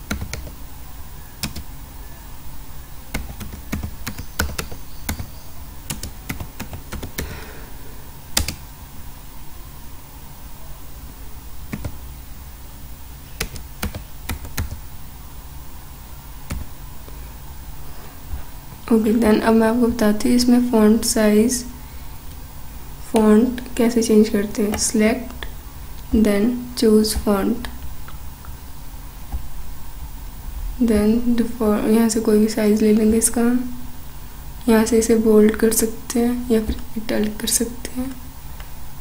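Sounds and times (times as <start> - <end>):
typing on computer keyboard: 0.0 - 0.6, 1.4 - 1.7, 3.1 - 5.3, 5.9 - 7.4, 8.4 - 8.6, 11.7 - 12.0, 13.4 - 14.8, 16.5 - 16.7.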